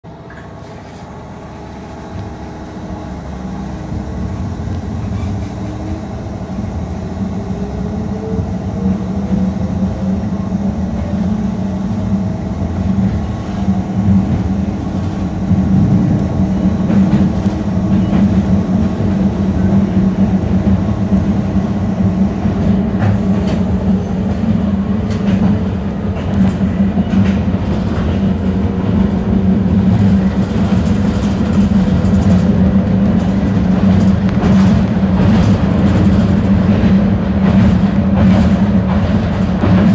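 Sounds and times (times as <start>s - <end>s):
train running rumble: 0.0s - 39.9s
wheels clicking over rail joints: 22.5s - 39.9s.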